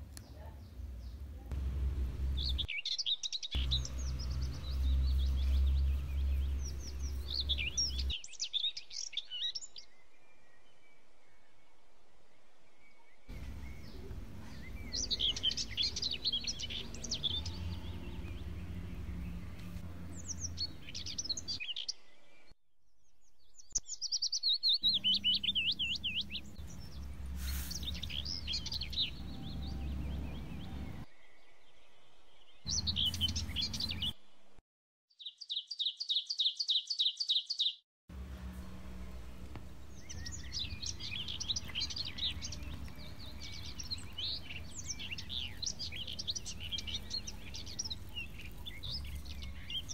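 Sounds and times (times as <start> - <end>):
small birds chirping and singing: 0.0 - 11.7, 12.8 - 34.2, 35.1 - 37.8, 38.5 - 49.9
low background rumble: 0.4 - 2.7, 3.6 - 8.2
bird chirping rapidly: 2.2 - 9.8, 13.3 - 22.0, 23.7 - 31.0, 32.7 - 34.2, 39.8 - 49.9.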